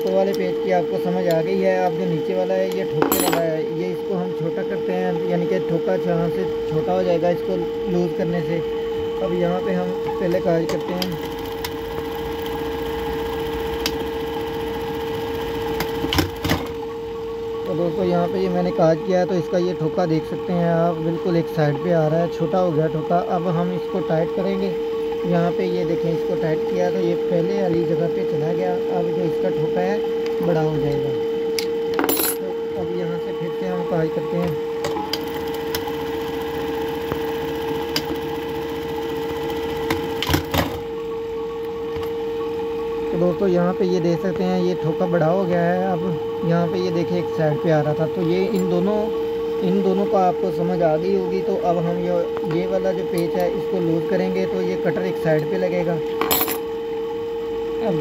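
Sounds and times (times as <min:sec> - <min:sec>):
machine motor hum: 0:00.0 - 0:58.0
sewing machine stitching: 0:10.2 - 0:16.8, 0:34.8 - 0:40.8.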